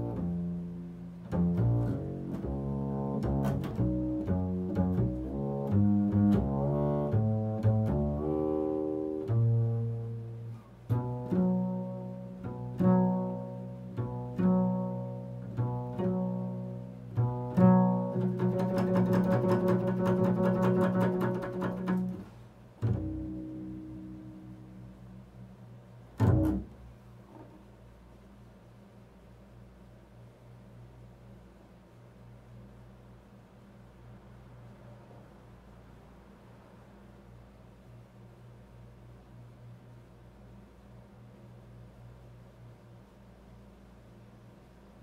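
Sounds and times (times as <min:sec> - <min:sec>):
double bass plucked: 0:00.0 - 0:27.9.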